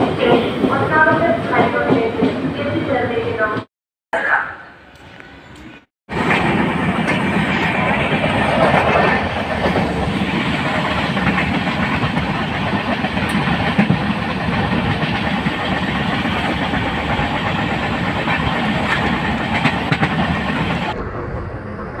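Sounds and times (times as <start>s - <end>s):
train rumbling rush: 0.0s - 3.7s, 4.9s - 22.0s.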